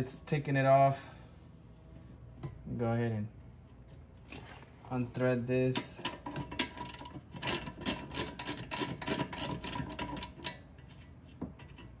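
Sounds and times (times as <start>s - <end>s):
ratchet wrench clicking: 5.7s - 10.6s.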